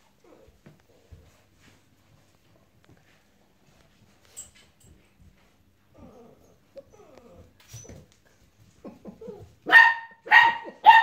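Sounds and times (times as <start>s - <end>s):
puppy barking: 9.6s - 11.0s.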